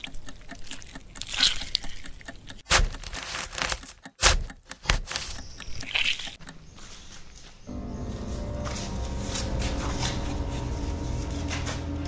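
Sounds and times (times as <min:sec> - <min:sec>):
sharp cracks and crackles: 0:01.1 - 0:06.4.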